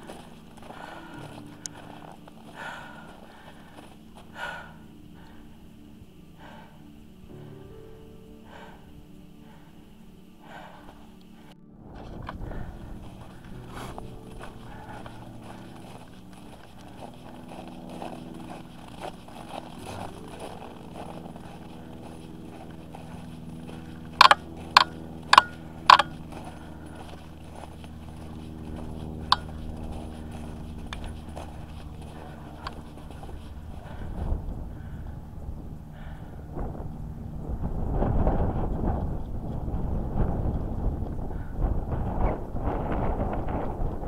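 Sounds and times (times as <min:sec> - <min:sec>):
footsteps crunching on snow: 0:00.0 - 0:07.5, 0:08.4 - 0:36.2
distant snowmobile engines droning: 0:00.0 - 0:44.0
sharp clicks: 0:23.8 - 0:28.2
trekking pole taps: 0:24.2 - 0:26.4, 0:29.2 - 0:29.6.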